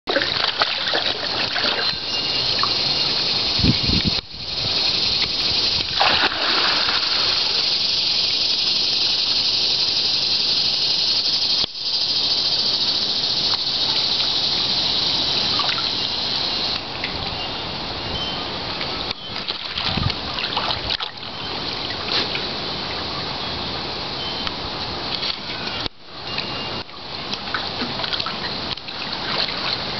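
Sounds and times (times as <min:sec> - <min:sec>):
dog splashing through water: 0:00.1 - 0:02.0, 0:05.9 - 0:07.6
rushing water hiss: 0:00.1 - 0:29.9.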